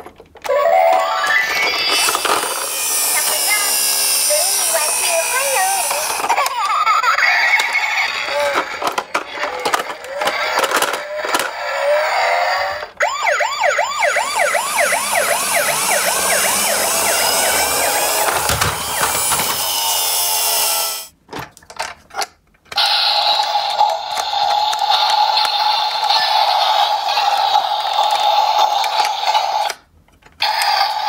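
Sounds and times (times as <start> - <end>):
plastic toy clicks and knocks: 0.0 - 11.7, 16.8 - 20.6
toy siren wailing: 0.5 - 21.1.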